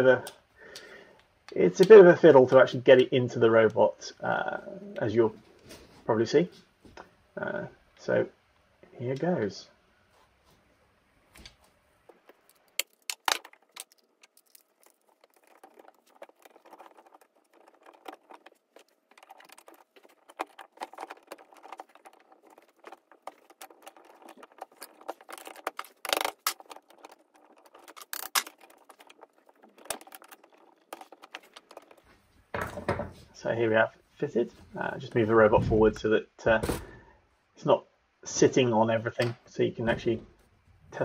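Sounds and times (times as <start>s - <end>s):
metal parts clinking and scraping: 12.2s - 32.0s.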